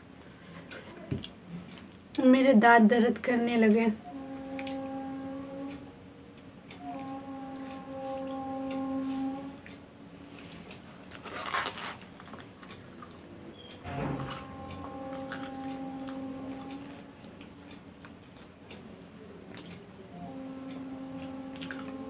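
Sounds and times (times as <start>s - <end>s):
steady held tone: 3.7s - 10.7s, 13.8s - 18.0s, 20.0s - 22.0s
popcorn crunching: 10.9s - 13.4s.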